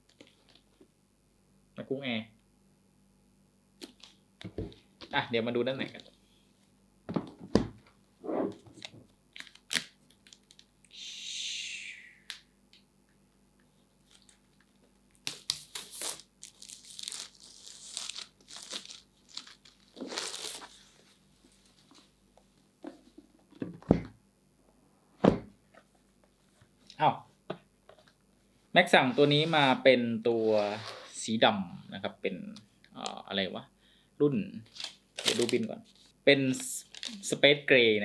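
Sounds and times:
wrapping tearing: 8.8 - 10.7, 14.0 - 20.9, 34.7 - 35.8, 36.8 - 37.3
plastic crinkling: 34.7 - 36.1, 36.8 - 37.4.

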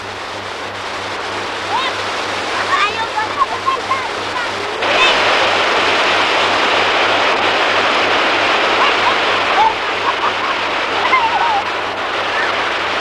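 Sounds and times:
water rushing over weir: 0.0 - 13.0
children calling out: 10.9 - 12.6.

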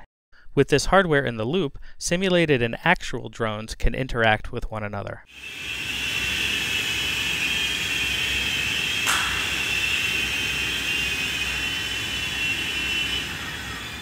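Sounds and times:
remote-control helicopters whining: 5.3 - 14.0.

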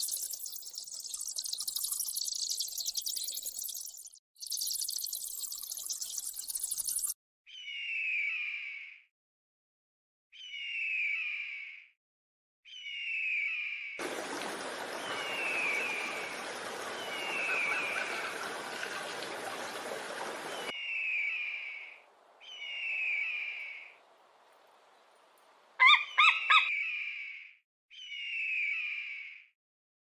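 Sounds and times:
sharp yelping notes: 25.8 - 26.7
bird of prey screams: 25.8 - 27.4.

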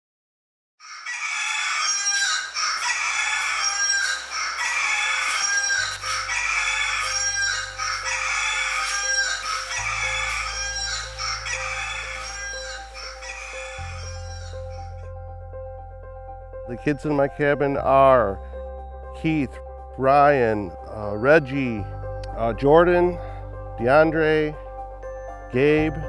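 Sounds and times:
low sustained bass notes: 14.5 - 26.0.

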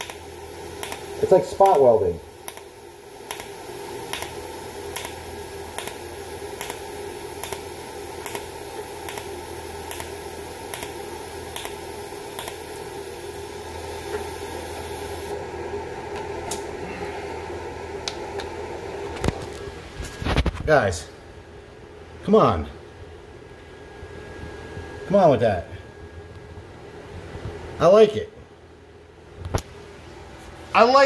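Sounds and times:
welder arc pulse cracks: 0.0 - 15.4, 16.1 - 20.5
steady hum: 0.0 - 31.0
scattered clicks: 0.8 - 1.0, 3.3 - 3.5, 4.1 - 5.2, 9.9 - 10.1, 11.5 - 11.8.

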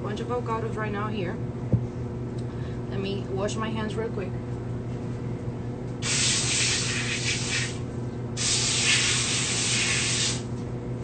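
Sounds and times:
spray faucet spraying water: 6.0 - 7.8, 8.4 - 10.4.

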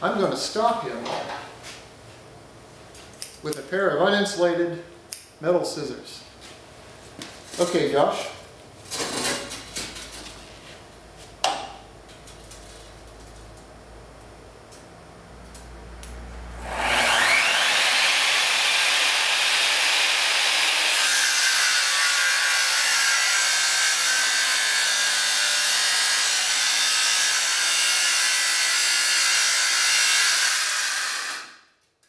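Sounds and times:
angle grinder grinding metal: 16.6 - 31.5.

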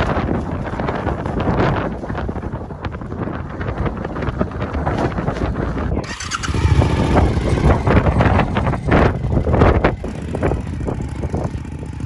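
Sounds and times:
wind buffeting microphone: 0.0 - 12.0
motorcycle engine pulling away: 6.0 - 12.0.

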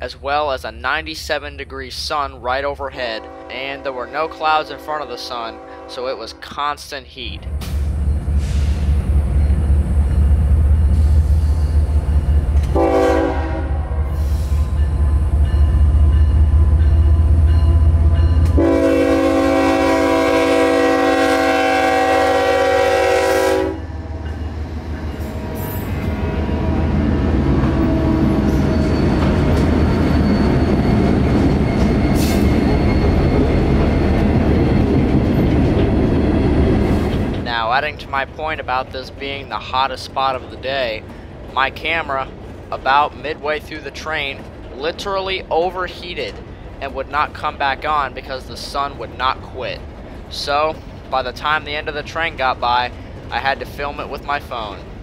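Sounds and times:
locomotive engine rumble: 0.0 - 55.0
railcar wheel noise: 0.0 - 55.0
train horn blasts: 3.2 - 6.4, 12.7 - 14.4, 18.4 - 24.2.

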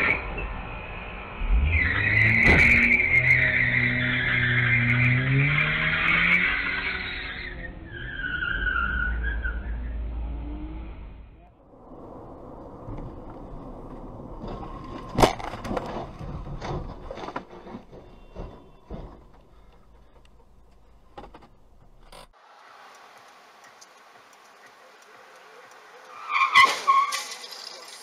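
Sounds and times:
road noise: 0.0 - 28.0
knocks and clattering: 14.4 - 22.3.

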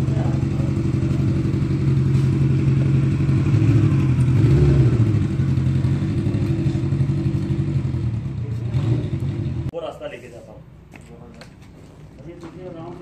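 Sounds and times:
motorcycle engine running: 0.0 - 9.7.

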